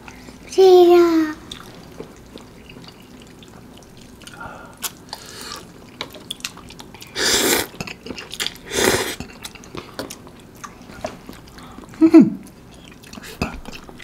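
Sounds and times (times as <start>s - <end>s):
wet chewing: 1.4s - 14.0s
noodles being slurped: 2.6s - 9.4s.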